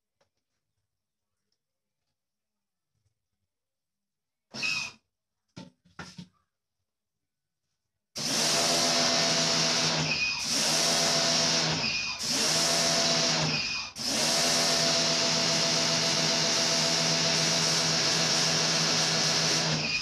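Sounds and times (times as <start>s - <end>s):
pressure washer spraying: 8.2s - 20.0s.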